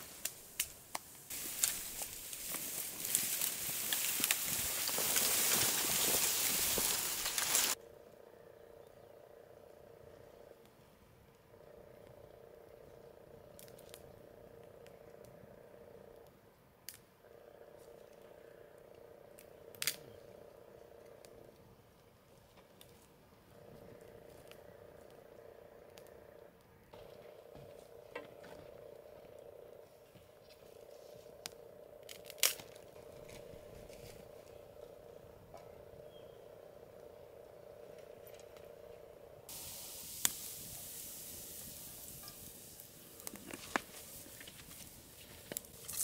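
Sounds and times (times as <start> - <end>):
wood fire crackling: 0.0 - 7.8, 18.9 - 21.6, 27.0 - 36.0, 36.6 - 46.0
faint steady hum: 0.0 - 46.0
firewood snapping: 0.1 - 7.8, 19.7 - 20.0, 31.4 - 33.4
frog chorus trilling: 1.4 - 16.4, 17.2 - 21.7, 23.5 - 39.5.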